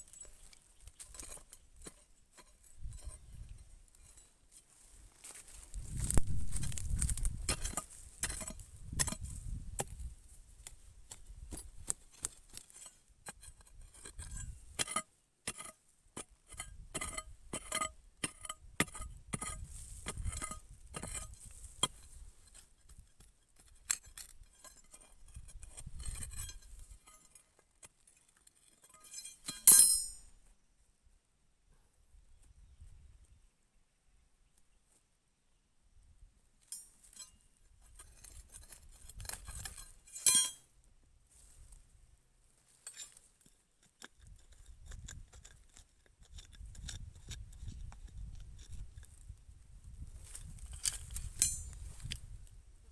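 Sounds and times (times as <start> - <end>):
digging bar clinking on stony soil: 0.0 - 30.6, 36.6 - 41.8, 42.5 - 52.6.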